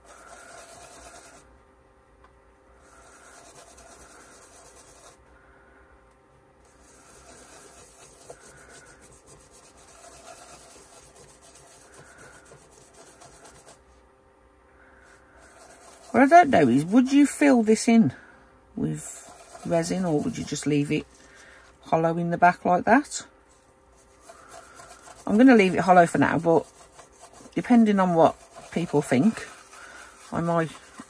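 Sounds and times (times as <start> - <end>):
brush rubbing on resin: 0.0 - 1.5, 2.8 - 5.2, 6.6 - 14.0, 15.0 - 18.2, 18.8 - 21.4, 23.5 - 31.0.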